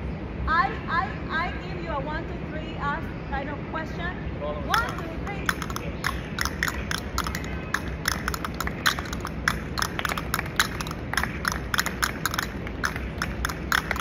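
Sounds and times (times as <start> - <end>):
low background rumble: 0.0 - 14.0
sharp percussive clicks: 4.7 - 14.0.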